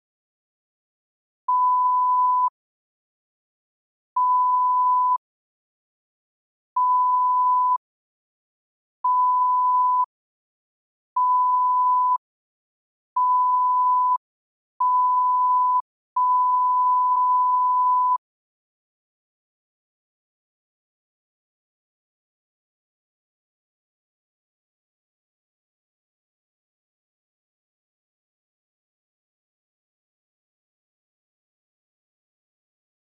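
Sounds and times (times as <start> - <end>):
electronic beep tone: 14.8 - 18.2.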